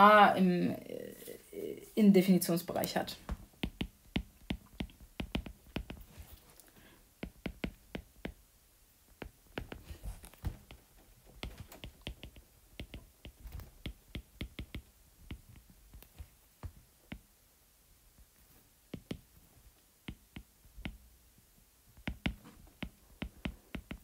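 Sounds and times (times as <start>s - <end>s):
stylus clicking on glass screen: 2.8s - 6.0s, 11.4s - 16.2s.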